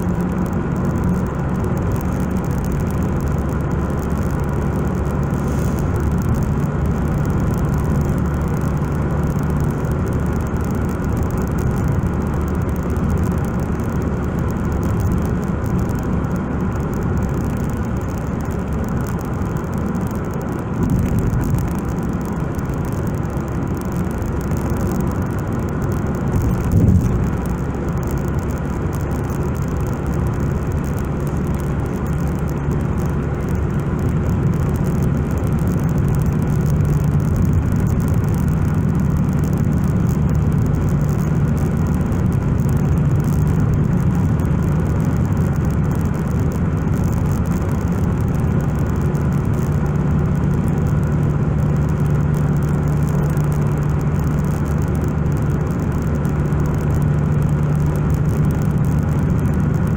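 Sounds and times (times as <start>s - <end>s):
low engine hum: 0.0s - 59.9s
tyres droning on asphalt: 0.0s - 59.9s.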